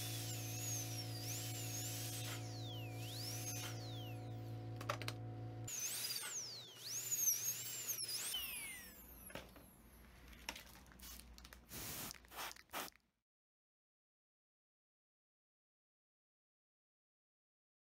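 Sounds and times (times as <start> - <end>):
electrical hum: 0.0 - 7.0
dental drill whining: 0.0 - 9.8.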